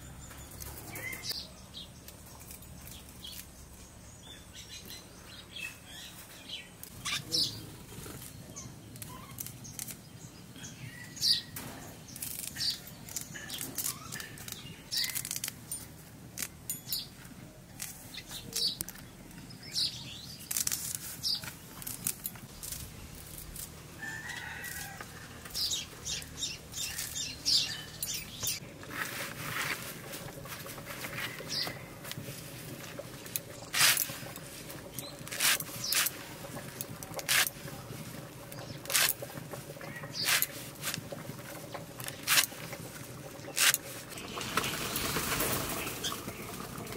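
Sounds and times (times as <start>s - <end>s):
leaves rustling and snapping: 8.0s - 10.0s, 11.6s - 16.7s, 19.9s - 25.6s, 28.4s - 42.8s
leaves cut against a blade: 11.6s - 15.6s, 20.3s - 23.8s, 33.7s - 34.2s, 35.3s - 36.3s, 37.2s - 37.6s, 38.9s - 39.2s, 40.2s - 41.0s, 42.0s - 42.6s, 43.5s - 44.0s
birds chirping faintly: 24.0s - 28.9s.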